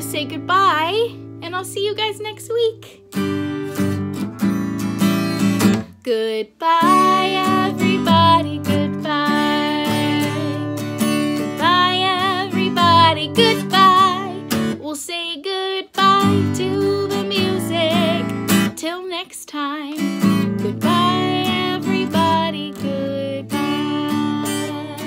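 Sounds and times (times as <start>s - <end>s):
strummed acoustic guitar: 0.0s - 6.0s, 6.8s - 14.8s, 16.0s - 18.8s, 19.9s - 25.0s
woman singing slow song: 5.9s - 25.0s.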